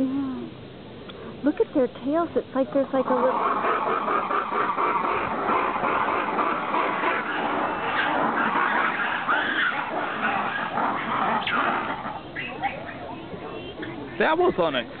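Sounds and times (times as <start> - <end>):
lemurs roar-shriek chorus: 2.9 - 13.8.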